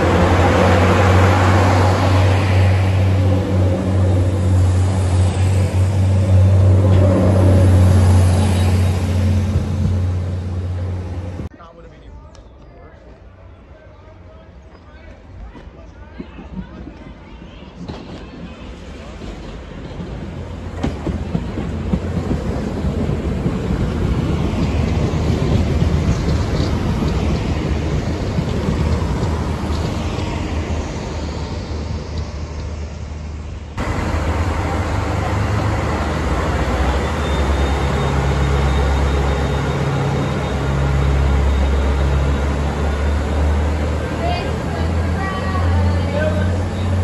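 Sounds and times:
diesel train passing: 0.0 - 12.0, 13.0 - 47.0
train engine drone: 0.0 - 12.0, 16.6 - 47.0.

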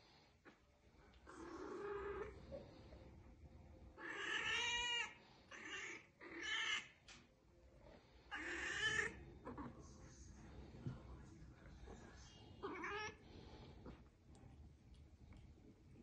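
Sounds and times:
cat meowing: 4.0 - 6.9, 12.6 - 13.2.

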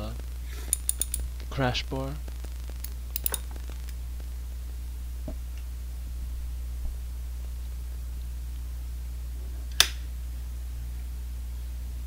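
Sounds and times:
steady low hum: 0.0 - 12.0
ratchet wrench clicks: 0.7 - 1.3, 2.8 - 3.4.

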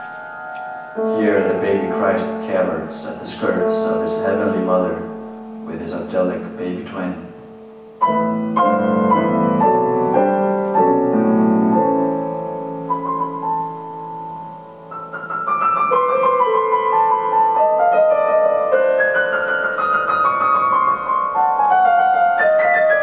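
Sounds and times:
grand piano playing: 0.0 - 23.0.

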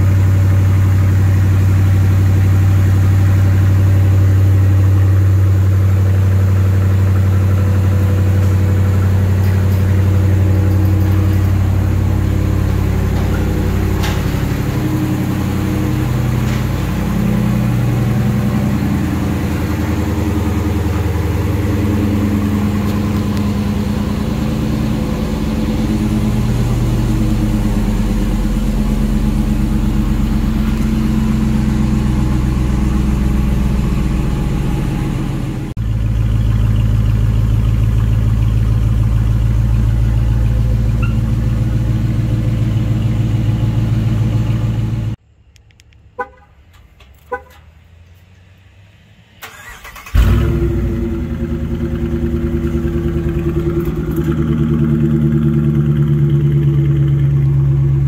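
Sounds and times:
car engine fast idle: 0.0 - 45.2, 49.4 - 58.0
engine starting with loud flare: 49.4 - 58.0.

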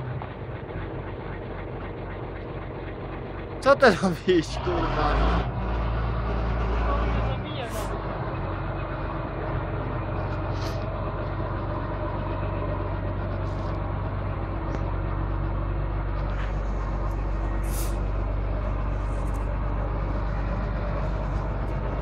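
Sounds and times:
diesel engine running: 0.0 - 22.0
short hisses: 17.6 - 18.0.

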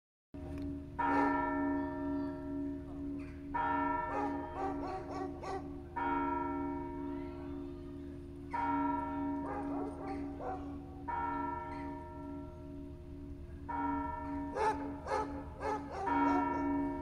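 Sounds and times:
large church bell ringing: 0.4 - 17.0
low bell tone pulsing: 0.4 - 17.0
small bells struck: 11.1 - 15.0.

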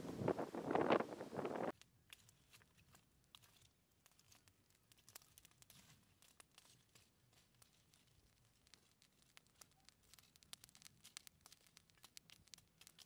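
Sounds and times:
charcoal fire crackling: 0.0 - 13.0
stick stirring coals: 0.1 - 13.0.

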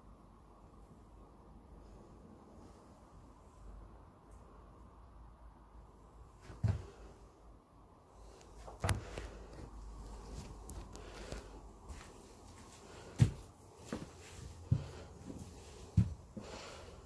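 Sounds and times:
footsteps on a bare floor: 6.4 - 7.0, 8.7 - 16.6.

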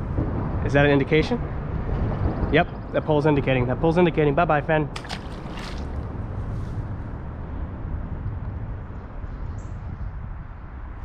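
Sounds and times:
fish splashing into water: 5.0 - 6.1.

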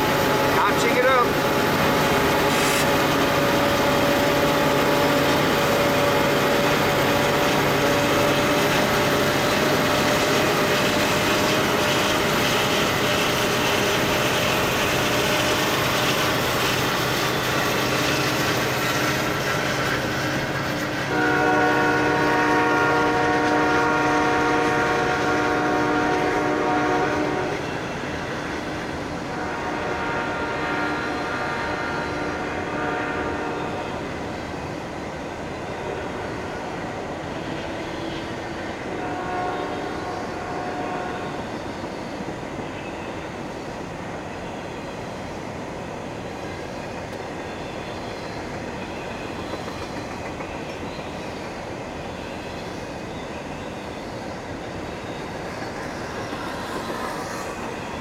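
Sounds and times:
diesel locomotives whining: 0.0 - 58.0
train wheels rolling on rails: 0.0 - 58.0
locomotive horn chord: 21.1 - 27.6, 29.4 - 33.9, 38.9 - 41.4.

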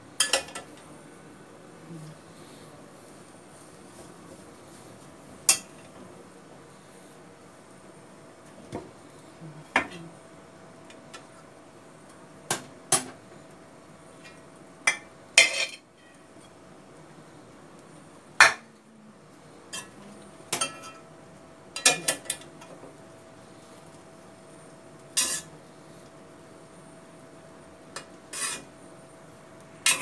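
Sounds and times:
metal spoon clinking against pots: 0.2 - 0.7, 19.7 - 21.0.

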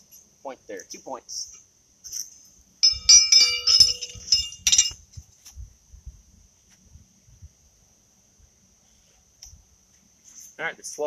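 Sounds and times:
horseshoes clinking and ringing: 2.8 - 5.0.

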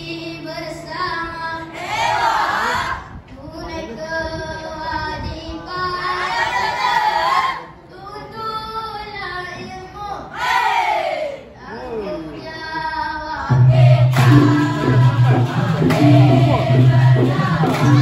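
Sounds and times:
boys singing group chant: 1.6 - 3.0, 13.4 - 18.0.

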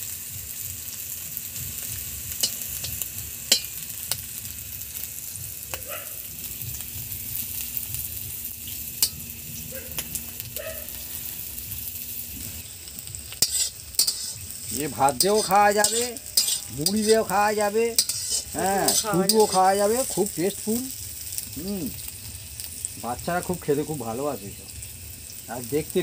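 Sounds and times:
vegetables sizzling in hot oil: 0.0 - 26.0
metal spatula scraping a wok: 1.7 - 4.4, 12.4 - 21.3.

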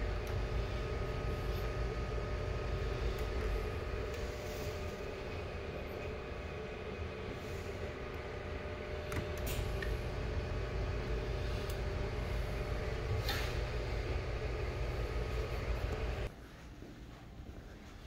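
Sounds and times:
smoker mechanical hum: 0.0 - 16.3.

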